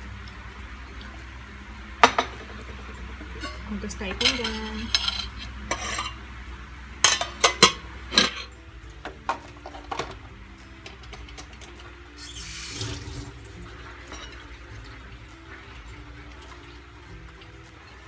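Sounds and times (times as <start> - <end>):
water rushing from tap: 0.0 - 5.8, 11.4 - 18.0
pot and utensils clanking: 2.0 - 6.3, 7.0 - 18.0.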